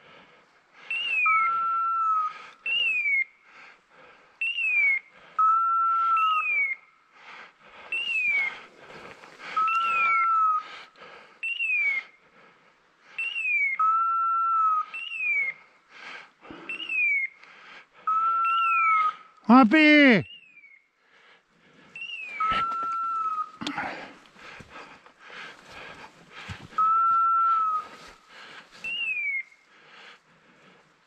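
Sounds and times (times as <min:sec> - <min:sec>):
brush and branches rustling: 0:07.6 - 0:11.0, 0:21.5 - 0:31.0.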